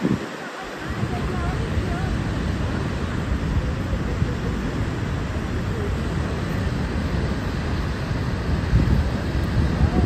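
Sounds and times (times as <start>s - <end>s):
waterfall rushing: 0.0s - 10.0s.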